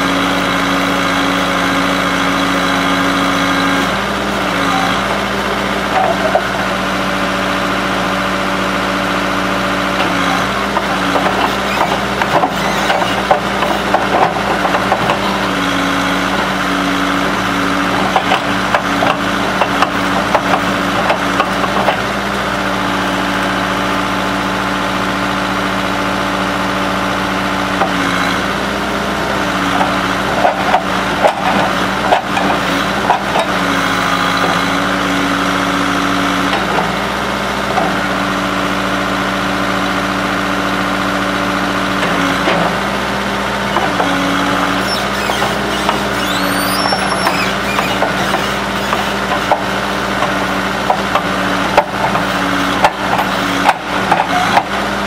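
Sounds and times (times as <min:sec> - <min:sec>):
backhoe engine running: 0:00.0 - 0:55.0.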